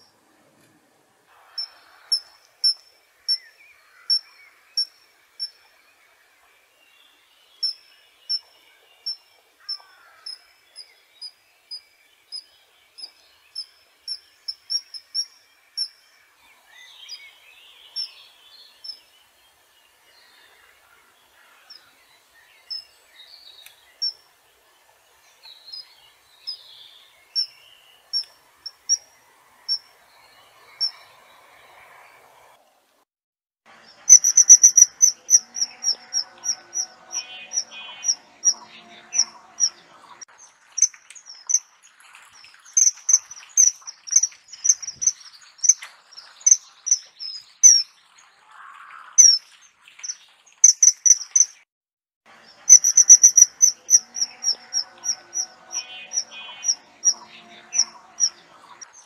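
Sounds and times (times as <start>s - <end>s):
faint background noise: 0.0s - 33.0s, 33.7s - 51.5s, 52.3s - 59.0s
kingfisher calling: 34.1s - 39.8s, 42.8s - 45.8s, 50.6s - 51.5s, 52.7s - 58.4s.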